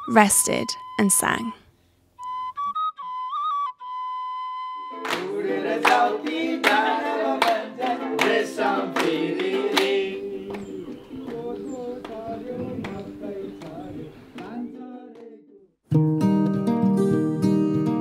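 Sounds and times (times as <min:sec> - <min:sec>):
hands clapping to a beat: 0:05.0 - 0:15.4
group singing together: 0:05.0 - 0:15.6.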